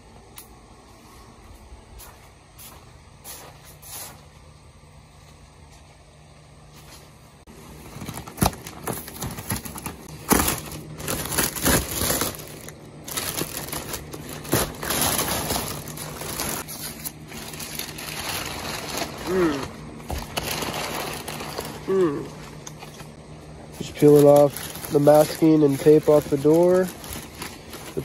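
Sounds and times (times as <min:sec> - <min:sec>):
plastic sheet and tape peeling: 0:07.8 - 0:21.8, 0:23.8 - 0:28.0.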